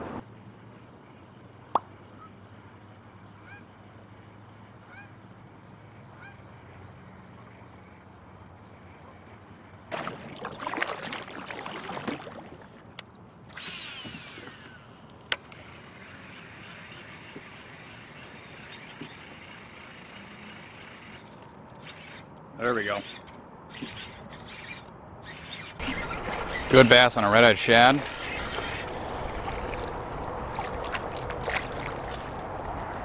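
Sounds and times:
birds calling: 11.6 - 33.0.

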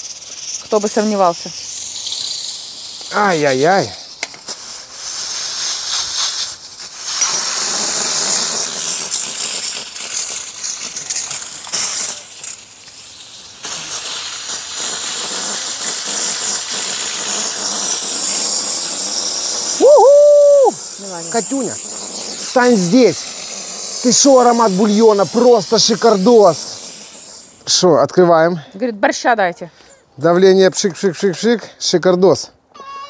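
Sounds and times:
steam hissing from pressure cooker: 0.0 - 28.0
loud voice call: 32.8 - 33.0.

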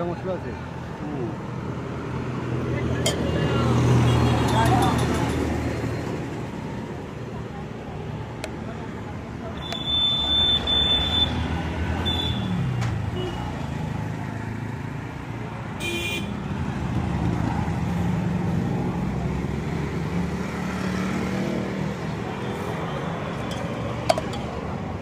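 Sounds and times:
vehicle engines running: 16.5 - 25.0.

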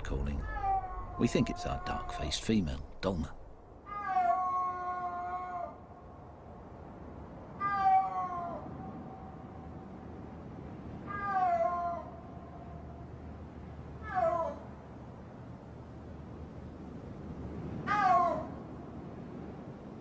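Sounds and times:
snow leopard calling: 0.0 - 3.2.

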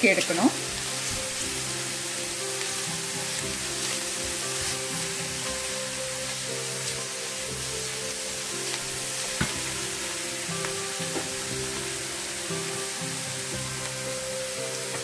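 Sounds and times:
food sizzling in a frying pan: 0.0 - 15.0.

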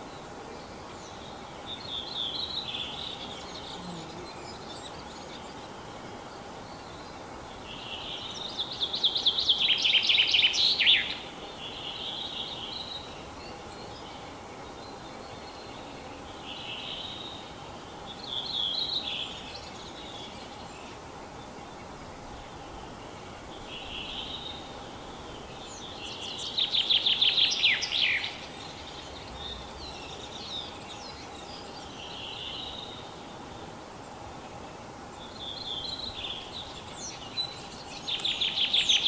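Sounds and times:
chaffinch singing: 0.0 - 39.0
faint steady hum: 0.0 - 39.0
fainter bird phrases: 3.7 - 4.4.

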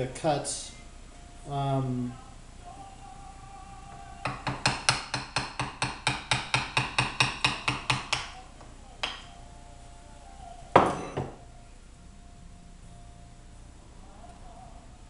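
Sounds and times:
mallet tapping wood chisel: 4.2 - 8.4, 9.0 - 9.3.

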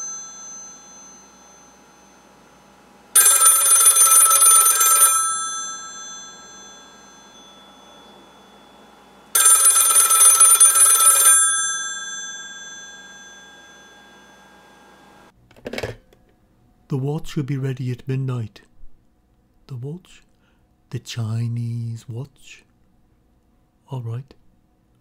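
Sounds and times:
telephone bells ringing: 0.0 - 15.3.

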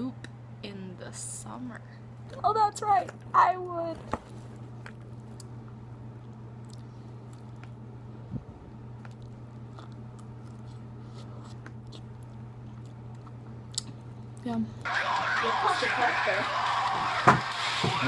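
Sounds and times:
steady low hum: 0.0 - 18.0
faint chewing: 4.5 - 7.8, 8.9 - 14.4.

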